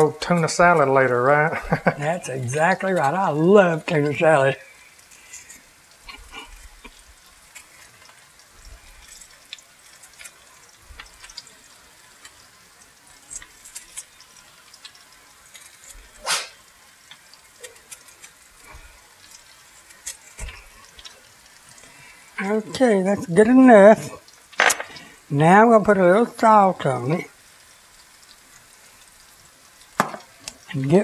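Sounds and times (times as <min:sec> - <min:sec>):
squash frying in oil: 0:00.0 - 0:31.0.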